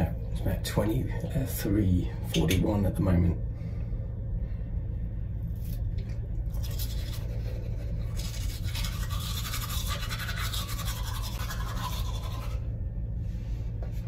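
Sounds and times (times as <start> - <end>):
low hum: 0.0 - 14.0
toothbrush scrubbing teeth: 5.6 - 12.7.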